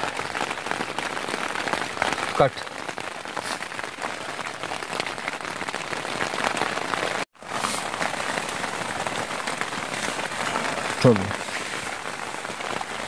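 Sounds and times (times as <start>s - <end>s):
heavy rain on a tent: 0.0s - 13.0s.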